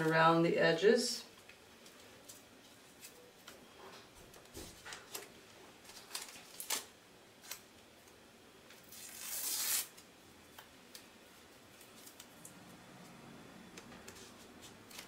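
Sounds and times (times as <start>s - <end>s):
tape ripping: 5.9s - 7.6s, 8.8s - 10.0s.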